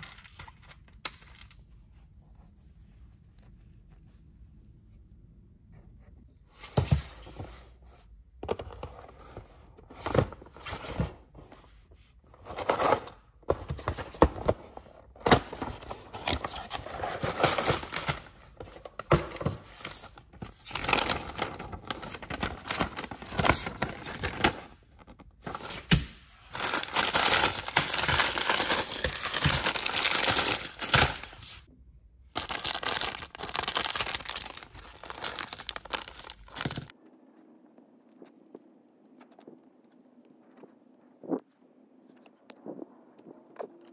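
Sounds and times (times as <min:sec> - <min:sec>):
plastic bags crinkling: 0:25.4 - 0:31.7, 0:32.4 - 0:36.9
plastic bag tearing: 0:26.6 - 0:31.5, 0:32.4 - 0:36.9.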